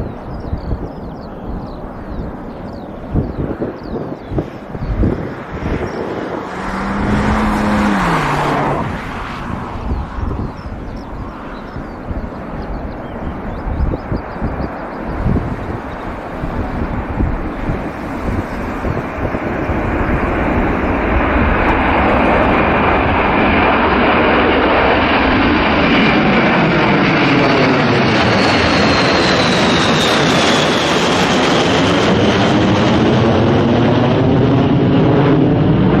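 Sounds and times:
jet aircraft roar overhead: 0.0s - 36.0s.

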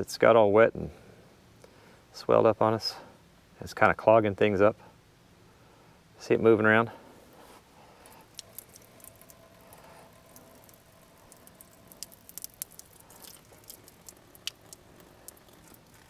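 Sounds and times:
water dripping: 8.0s - 16.0s.

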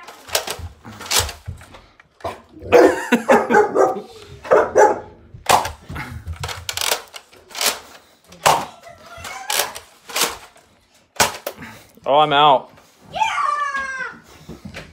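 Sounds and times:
dog barking: 2.7s - 5.2s.

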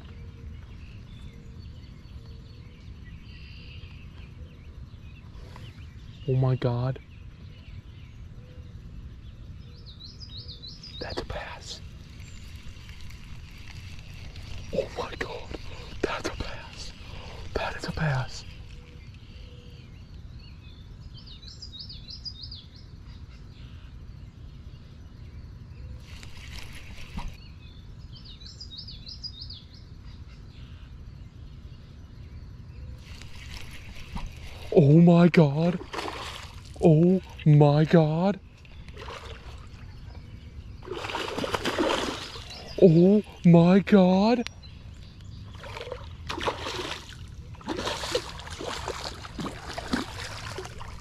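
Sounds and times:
songbird singing: 0.0s - 51.0s
steady low rumble: 7.0s - 28.4s.

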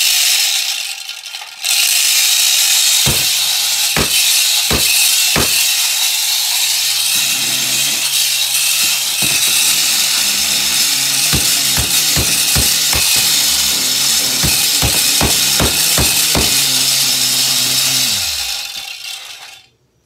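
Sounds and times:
power tool whining: 1.8s - 19.6s
deep thumps: 3.1s - 5.8s, 7.2s - 18.2s.

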